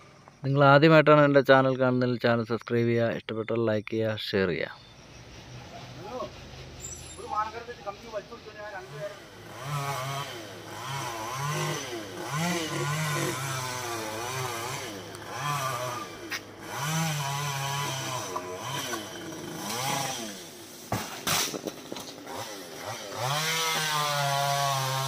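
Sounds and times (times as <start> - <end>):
chainsaw cutting branches: 8.8 - 25.0.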